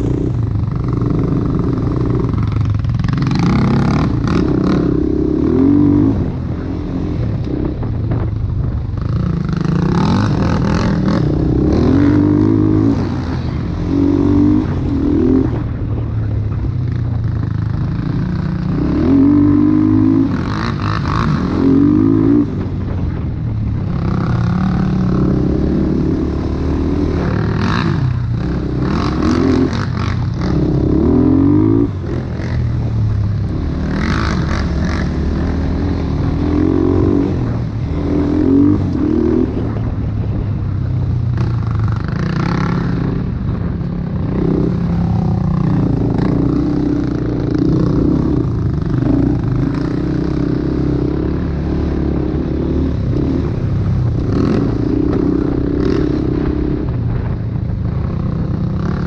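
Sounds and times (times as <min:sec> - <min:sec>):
engine revving: 0:00.0 - 0:08.2, 0:09.0 - 0:16.6, 0:17.7 - 0:23.2, 0:23.8 - 0:40.4.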